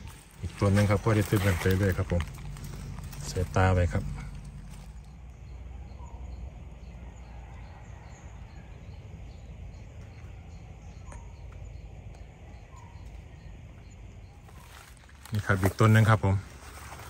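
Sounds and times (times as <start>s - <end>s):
high insect chirping: 0.0s - 17.0s.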